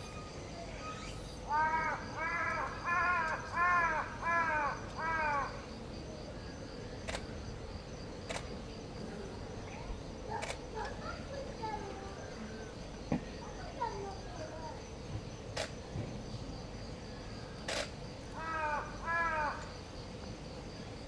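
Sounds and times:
crow cawing: 1.5s - 5.6s, 18.4s - 19.8s
faint clicks: 7.0s - 7.3s, 8.3s - 8.5s.

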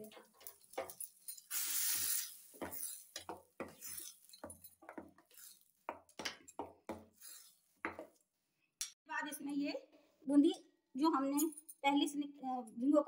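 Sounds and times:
steel spoon clinking and scraping bowl: 0.4s - 5.7s
hot oil hissing: 1.5s - 4.2s.

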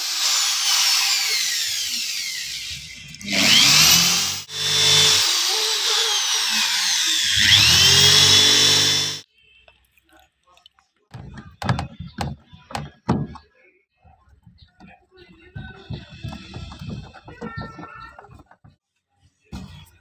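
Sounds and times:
electric drill boring into wood: 0.0s - 9.2s.

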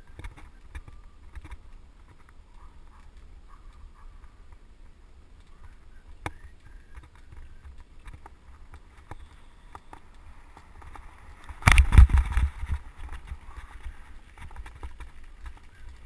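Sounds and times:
bike clicks and ticks: 0.0s - 16.0s
wind rumbling on microphone: 0.0s - 16.0s.

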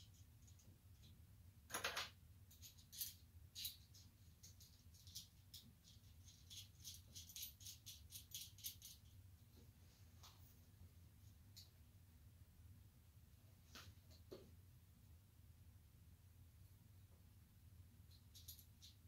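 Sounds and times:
low steady hum: 0.0s - 19.0s
metal fittings clicking and rattling: 1.7s - 9.1s, 18.1s - 19.0s.

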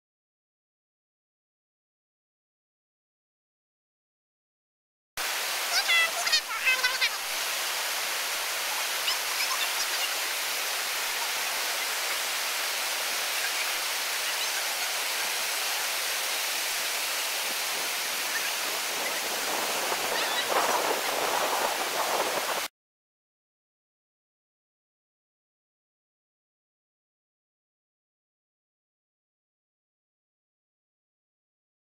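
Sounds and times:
river rapid rushing: 5.2s - 22.7s.

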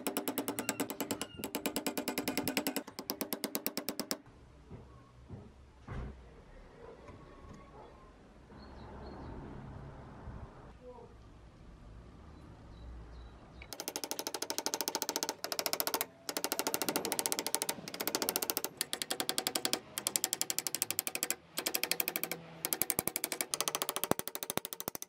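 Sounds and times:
hammer tapping on metal: 0.0s - 4.3s, 13.7s - 25.0s.

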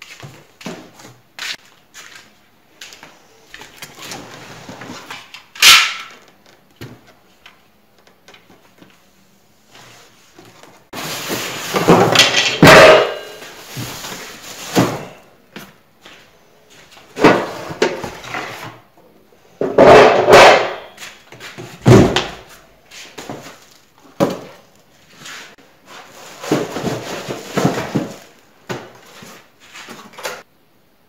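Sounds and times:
polystyrene packing rustling: 10.6s - 12.4s, 13.2s - 15.3s, 21.0s - 30.4s.

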